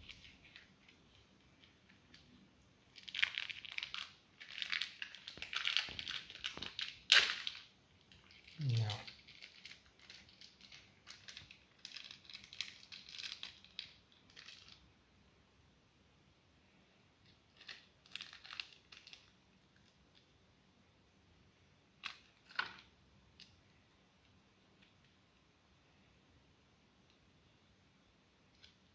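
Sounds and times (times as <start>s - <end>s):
plastic wrapping crinkling: 0.0s - 2.3s, 2.9s - 14.8s, 17.5s - 19.9s.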